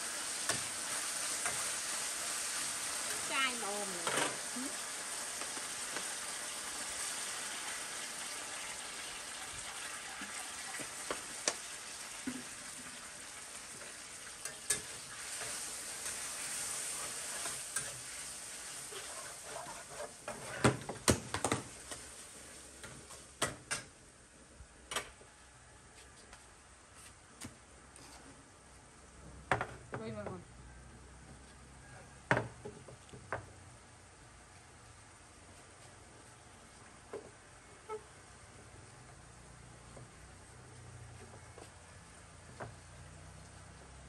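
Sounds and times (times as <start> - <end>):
food sizzling in a wok: 0.0 - 23.4
metal spatula clinking on pan: 14.4 - 14.9.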